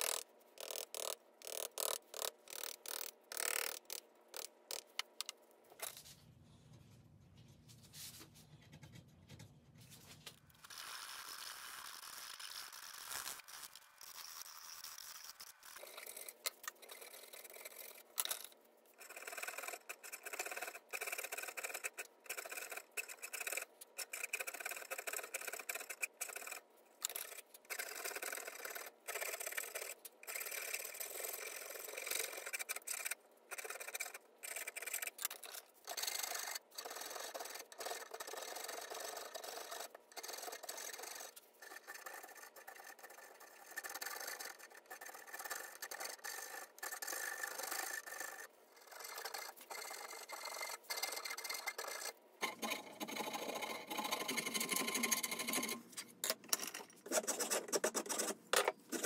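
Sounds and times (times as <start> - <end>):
file rasping on wood: 19.0 - 55.8.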